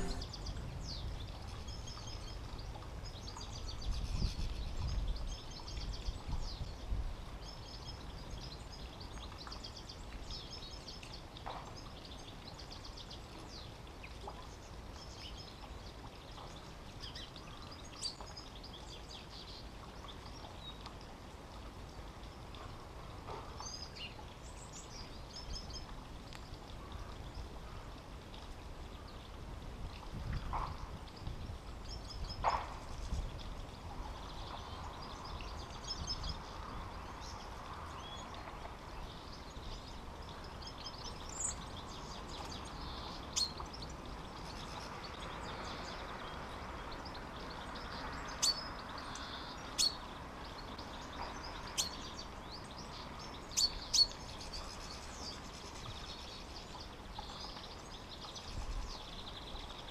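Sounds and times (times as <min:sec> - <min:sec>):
wind rumble on microphone: 0:00.0 - 0:10.8, 0:24.0 - 0:49.2, 0:50.1 - 0:59.9
outdoor background noise: 0:00.0 - 0:59.9
songbirds chirping and twittering: 0:00.0 - 0:59.9.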